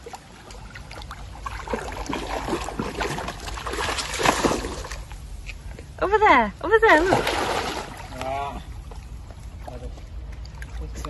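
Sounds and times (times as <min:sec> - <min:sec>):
dog splashing through water: 0:00.0 - 0:05.0, 0:07.0 - 0:08.3.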